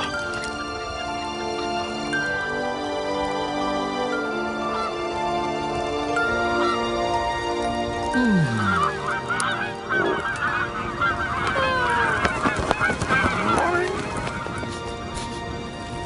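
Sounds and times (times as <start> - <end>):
birds honking and squawking: 3.9 - 7.1, 8.4 - 14.7
low tone sliding down: 8.2 - 9.4.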